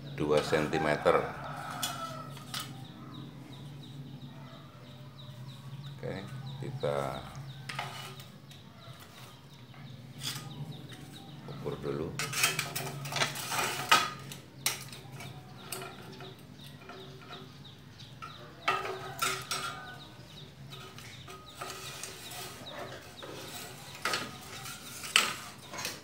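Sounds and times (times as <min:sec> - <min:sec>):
metal parts clinking and rattling: 0:07.0 - 0:11.4, 0:12.1 - 0:26.0.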